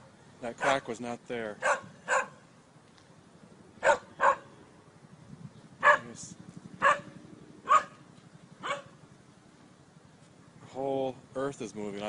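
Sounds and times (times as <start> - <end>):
dog barking: 0.6 - 0.8, 1.6 - 2.4, 3.8 - 4.5, 5.8 - 6.2, 6.8 - 8.0, 8.6 - 9.0.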